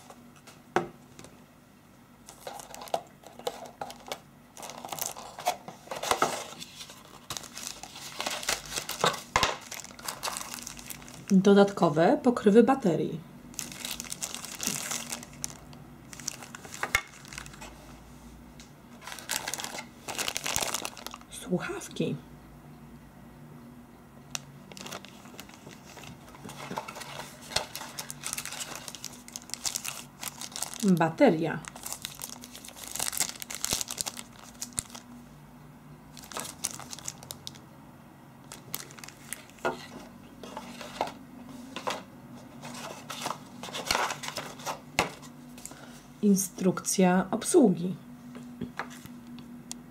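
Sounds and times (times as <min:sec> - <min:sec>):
plastic bags crinkling: 0:02.2 - 0:12.0, 0:13.5 - 0:17.8, 0:19.0 - 0:21.4, 0:24.3 - 0:35.2, 0:36.1 - 0:37.6, 0:38.4 - 0:41.2.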